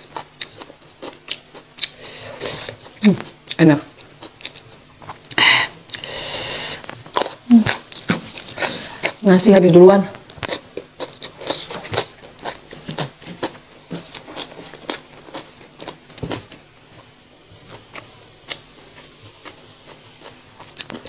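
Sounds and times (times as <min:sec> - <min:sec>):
chewing with wet mouth smacks: 0:10.3 - 0:16.6.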